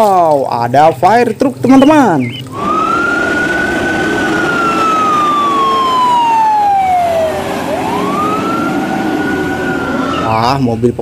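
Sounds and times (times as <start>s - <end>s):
siren wailing: 1.7s - 10.8s
low rumble: 2.5s - 10.3s.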